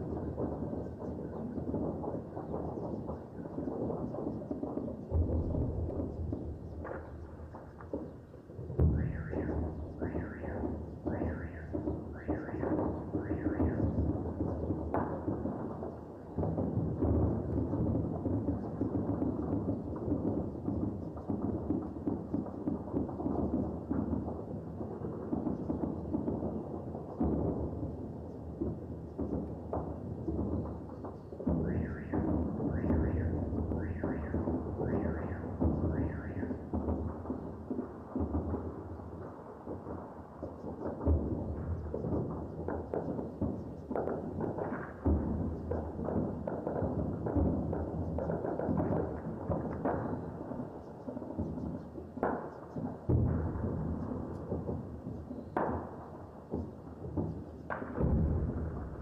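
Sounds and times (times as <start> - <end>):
distant gunfire and explosions: 0.0 - 59.0
explosion booms: 53.1 - 54.8, 57.7 - 59.0.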